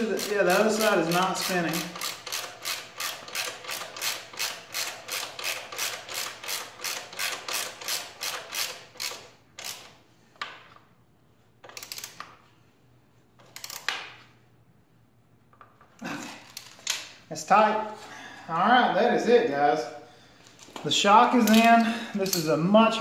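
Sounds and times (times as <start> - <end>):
ratchet wrench clicking: 0.0 - 10.0, 11.6 - 12.3, 13.4 - 14.0, 21.4 - 22.6.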